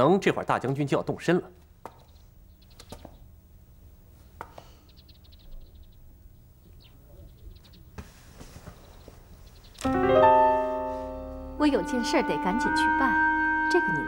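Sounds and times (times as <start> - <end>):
faint bird chirps: 2.0 - 3.3, 4.7 - 8.0, 8.7 - 9.8.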